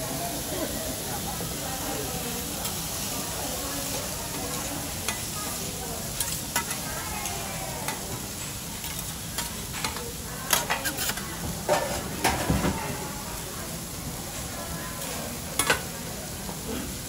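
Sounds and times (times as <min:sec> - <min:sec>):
food sizzling on a griddle: 0:00.0 - 0:17.0
metal spatulas scraping hot plate: 0:06.2 - 0:12.4.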